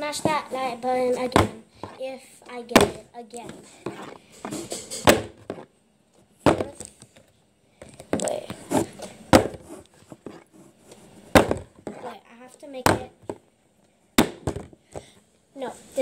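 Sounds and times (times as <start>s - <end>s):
plastic bottle landing on table: 4.5s - 5.6s, 6.4s - 6.9s, 11.4s - 12.0s, 14.2s - 14.8s.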